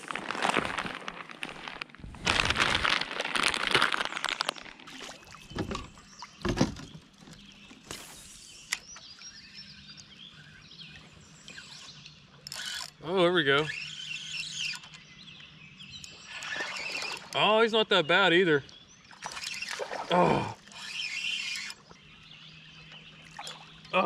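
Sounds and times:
rustling handling noise: 0:00.0 - 0:05.0
faint bird chirps: 0:05.0 - 0:12.4.

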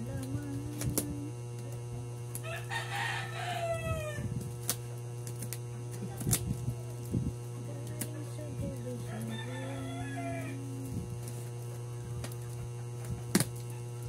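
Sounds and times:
steady low hum: 0:00.0 - 0:14.0
rooster crowing: 0:02.4 - 0:04.4, 0:09.0 - 0:11.0.

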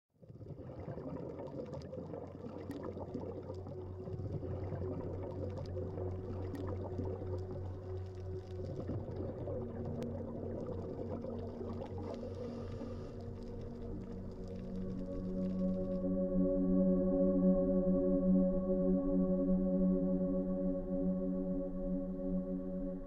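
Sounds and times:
low watery wash: 0:00.4 - 0:16.1
soft held drone tones: 0:02.9 - 0:23.0.

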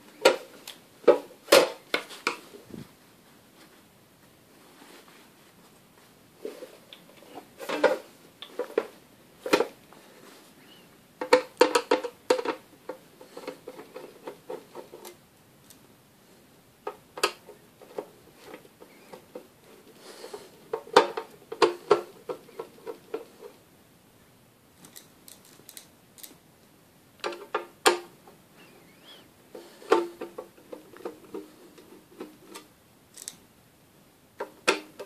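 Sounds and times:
screwdriver clicking and scraping: 0:33.2 - 0:33.4.

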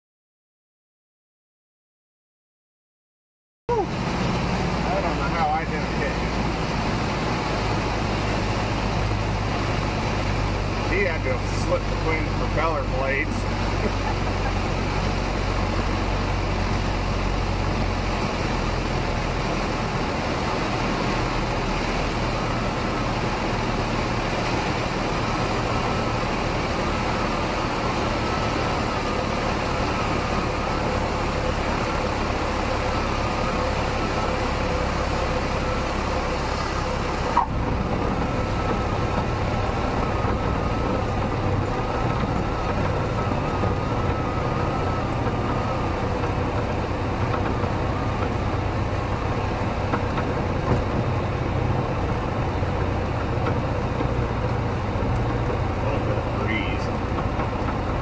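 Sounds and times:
light aircraft engine idling: 0:03.7 - 0:58.0.

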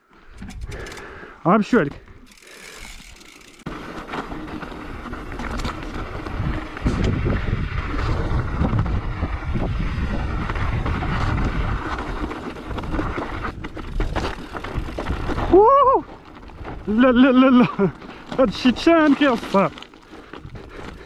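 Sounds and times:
bike tyres clattering over stones: 0:00.2 - 0:21.0
wind buffeting microphone: 0:05.0 - 0:17.0.

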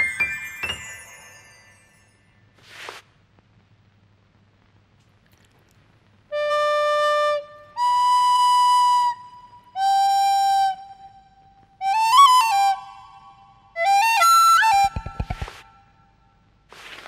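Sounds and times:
flute long held notes: 0:06.3 - 0:16.1.

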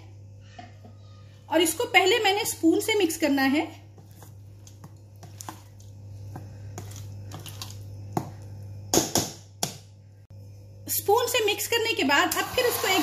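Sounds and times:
low steady hum: 0:00.0 - 0:13.0
spoon scraping steel bowl: 0:12.3 - 0:13.0.

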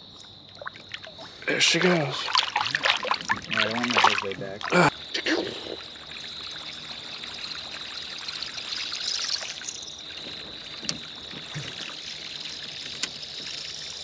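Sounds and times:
high insect trill: 0:00.0 - 0:14.0
water lapping against boat hull: 0:00.2 - 0:14.0.

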